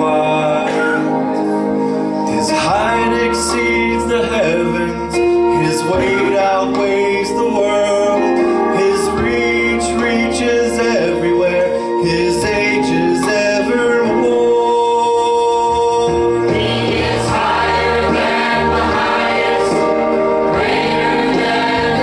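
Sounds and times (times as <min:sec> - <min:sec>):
man singing solo into microphone: 0:00.0 - 0:01.3, 0:02.2 - 0:16.9
instrumental accompaniment: 0:00.0 - 0:22.0
choir singing gospel: 0:16.3 - 0:22.0.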